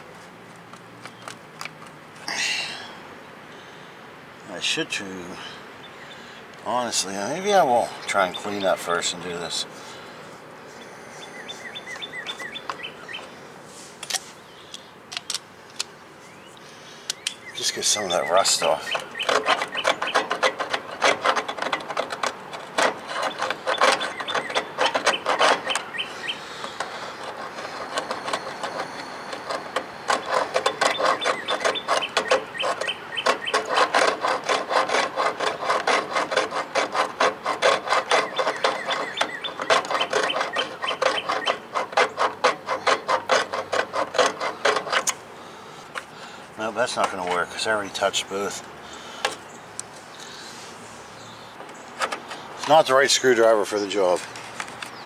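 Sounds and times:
hand tool scraping metal terminals: 17.1 - 55.0.

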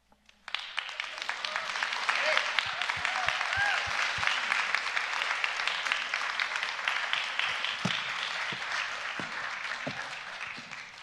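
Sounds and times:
audience applauding: 0.4 - 11.0
soft low thumps: 7.8 - 10.7.

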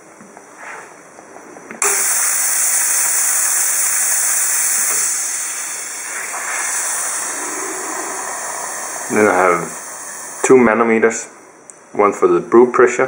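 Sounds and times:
steam wand hissing: 1.8 - 11.6.

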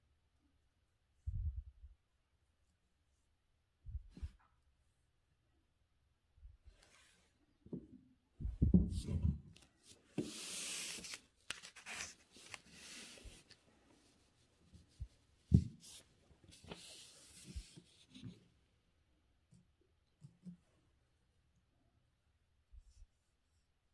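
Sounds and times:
paper rustling and sliding: 9.6 - 14.2, 15.8 - 18.2.

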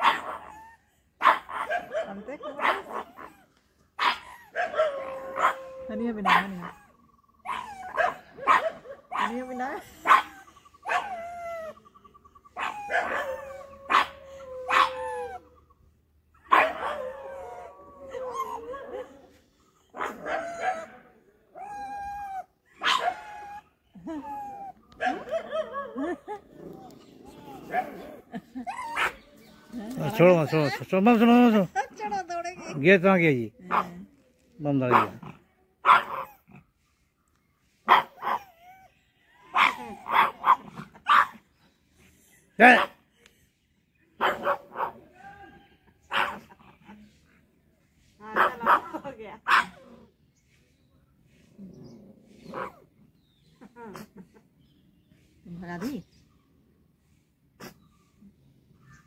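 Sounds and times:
dog barking with howling tail: 0.0 - 0.5, 1.2 - 3.3, 4.0 - 6.7, 7.5 - 9.4, 10.0 - 11.2, 12.6 - 15.1, 16.5 - 19.3, 22.8 - 23.2, 37.8 - 38.4
dog howling: 4.6 - 6.7, 12.6 - 15.6, 16.5 - 19.2.

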